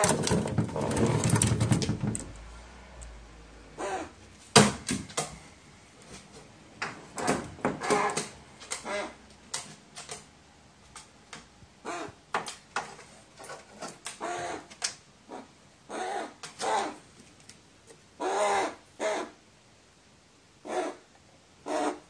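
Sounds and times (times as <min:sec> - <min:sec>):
crow low calls: 0:03.8 - 0:04.2, 0:07.8 - 0:09.2, 0:11.8 - 0:12.2, 0:14.2 - 0:14.7, 0:15.3 - 0:17.0, 0:18.2 - 0:19.4, 0:20.6 - 0:21.0, 0:21.6 - 0:22.0.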